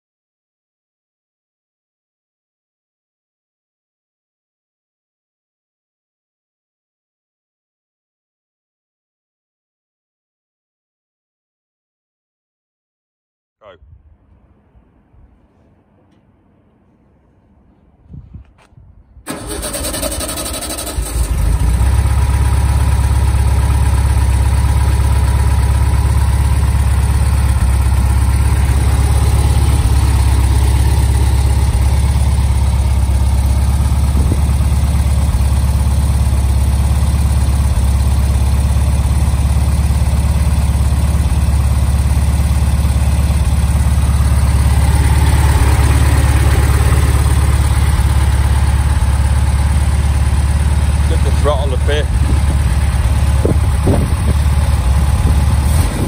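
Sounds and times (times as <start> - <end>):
starter motor cranking: 19.3 - 22.1
car engine idling: 19.3 - 56.0.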